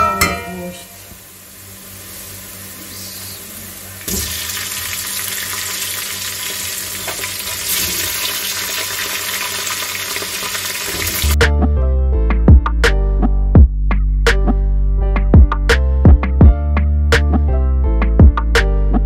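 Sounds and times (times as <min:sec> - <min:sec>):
meat sizzling in hot oil: 0:00.9 - 0:11.4
background music with a beat: 0:11.4 - 0:19.0.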